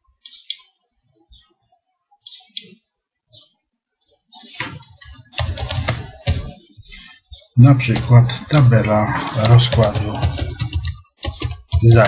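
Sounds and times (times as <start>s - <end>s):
keyboard typing: 4.8s - 7.0s, 7.7s - 12.0s
computer mouse clicking: 9.1s - 11.9s.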